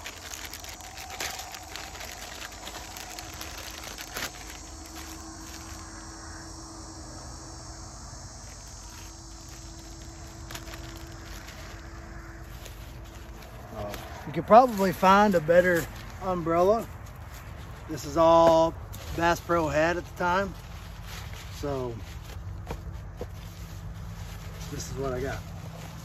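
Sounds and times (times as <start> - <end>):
plastic bag crinkling: 0.0 - 6.5, 8.6 - 26.0
insects calling: 0.0 - 26.0.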